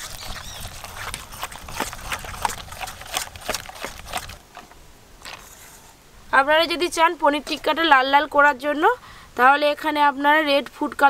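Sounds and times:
spoon scraping steel bowl: 0.0 - 4.4.

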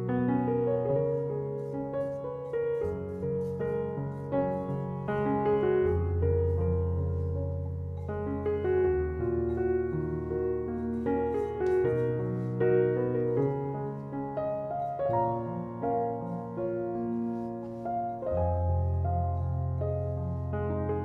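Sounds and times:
piano music: 0.0 - 21.0.

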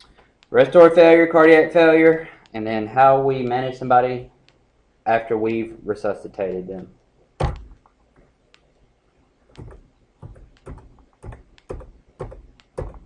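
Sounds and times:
thump: 7.4 - 7.7.

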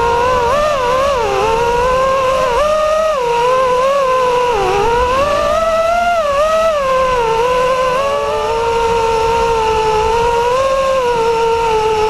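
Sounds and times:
drone motors whining: 0.0 - 12.0.

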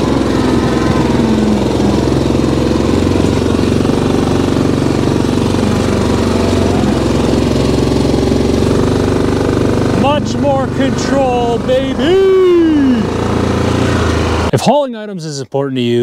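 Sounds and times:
atv engine running at low revs: 0.0 - 14.5.

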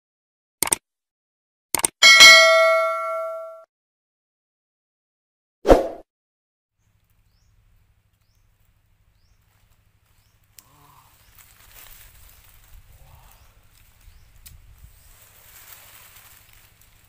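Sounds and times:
faint outdoor rustling: 6.8 - 17.0.

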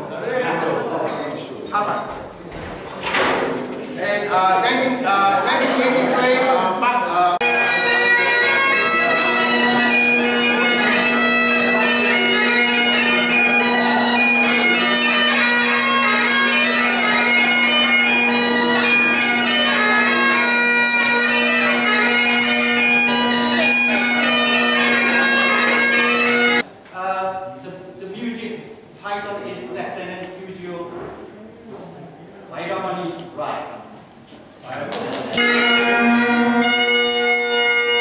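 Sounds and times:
bagpipes playing: 7.4 - 26.6, 35.4 - 38.0.

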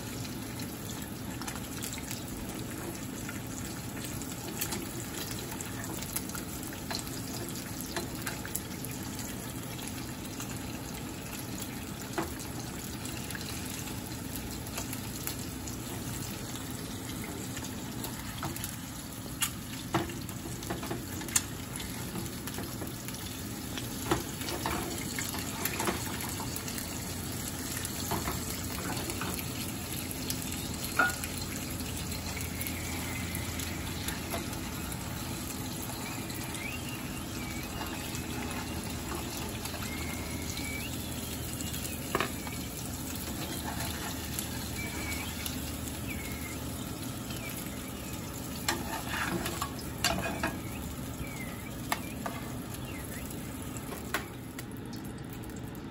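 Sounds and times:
eggs sizzling in oil: 0.0 - 55.9
metal spatula scraping a pan: 43.3 - 44.3, 48.7 - 50.6.

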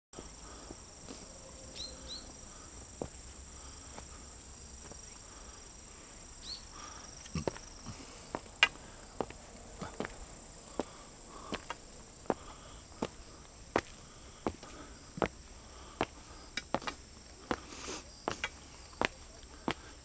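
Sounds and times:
insects trilling: 0.2 - 20.0
footsteps scuffing on path: 8.3 - 15.4, 16.0 - 19.9.

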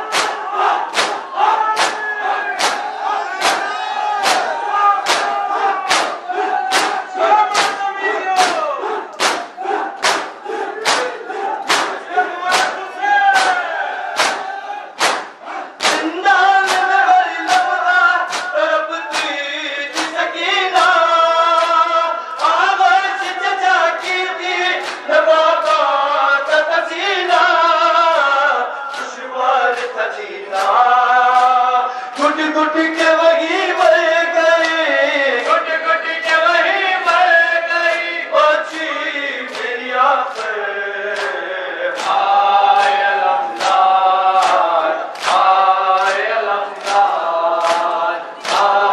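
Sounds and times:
crowd chanting in chorus: 0.0 - 48.9
hands slapping bare chests: 0.1 - 19.3, 19.9 - 21.0, 24.8 - 25.8, 40.3 - 42.2, 42.8 - 48.7
man singing a lament: 15.8 - 48.9.

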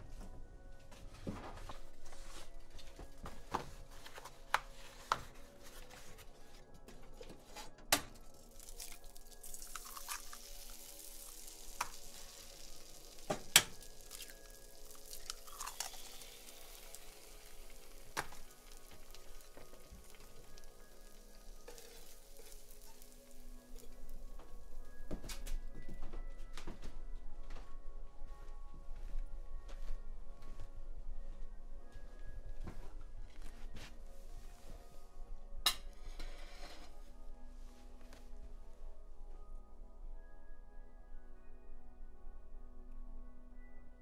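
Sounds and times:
eggs sizzling in a pan: 8.4 - 24.7.

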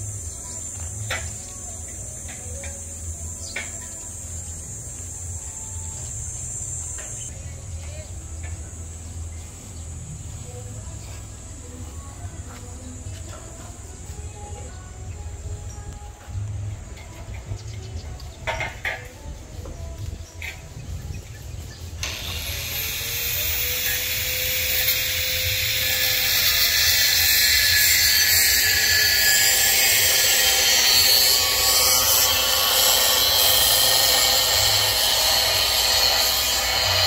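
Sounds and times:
power tool hissing: 22.0 - 37.0.

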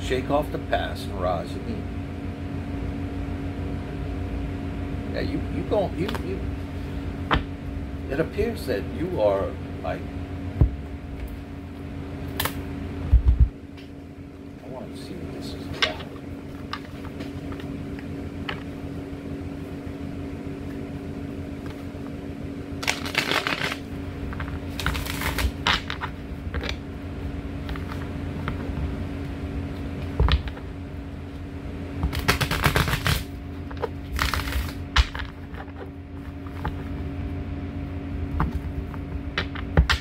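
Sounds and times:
low mechanical hum: 0.0 - 40.0
cards being shuffled: 22.8 - 26.8, 32.0 - 37.0.

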